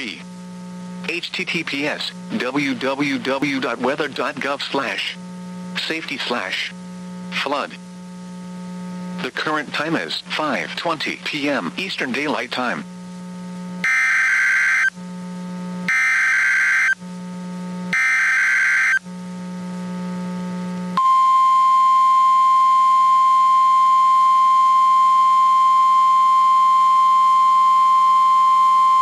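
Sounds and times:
steady warning alarm tone: 13.8 - 14.9, 15.9 - 17.0, 17.9 - 19.0.

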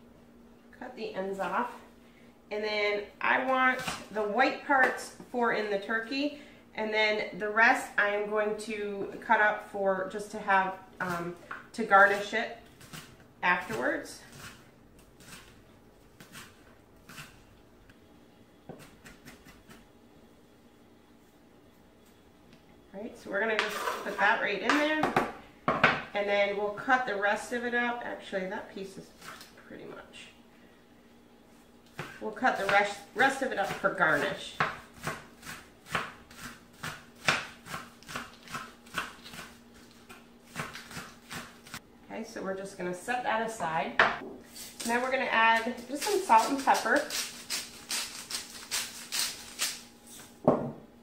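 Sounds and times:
knife chopping on plastic mat: 31.9 - 33.0, 33.6 - 41.8.

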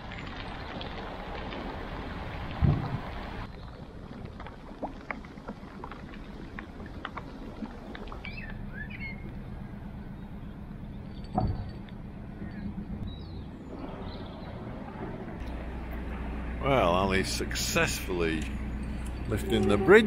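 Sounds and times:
boat engine running at low revs: 0.0 - 20.0
bird chirps: 8.2 - 9.4, 10.0 - 14.6.

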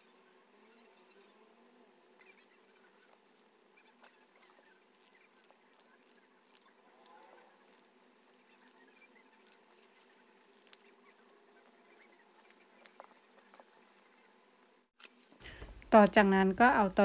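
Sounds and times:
scissors cutting fabric: 3.8 - 13.2.

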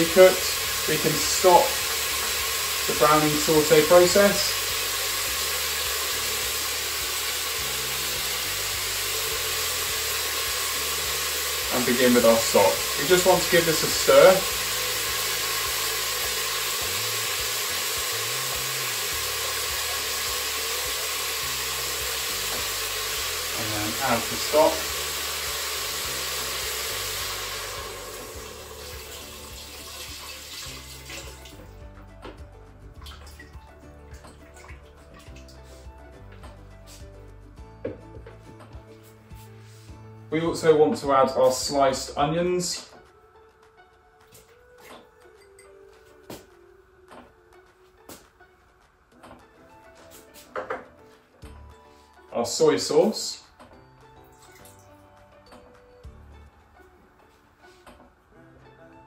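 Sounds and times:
chicken sizzling in a pot: 0.0 - 31.7.

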